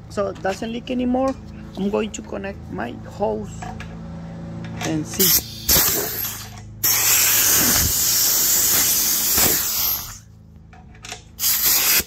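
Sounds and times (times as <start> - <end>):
compressed air hissing: 5.3 - 10.2, 11.4 - 12.0.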